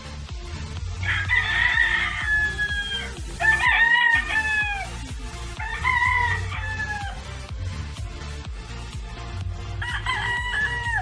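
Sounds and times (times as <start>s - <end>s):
roosters crowing: 0.9s - 7.5s, 9.7s - 11.0s.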